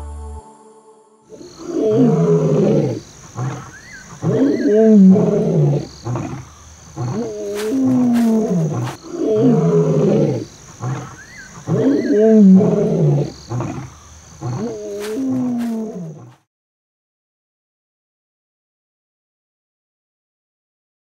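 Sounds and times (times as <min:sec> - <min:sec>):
lion roaring: 0:01.3 - 0:16.4.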